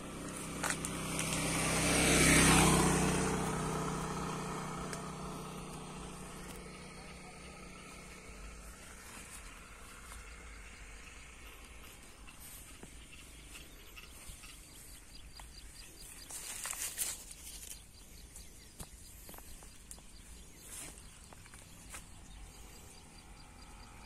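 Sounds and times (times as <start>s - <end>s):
insects chirping: 5.5s - 24.0s.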